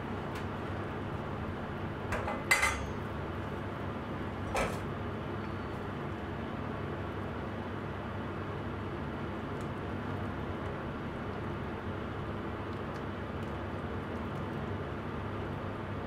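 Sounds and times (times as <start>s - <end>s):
pot simmering on gas stove: 0.0s - 15.9s
metal utensil clattering on saucepan: 2.1s - 3.0s.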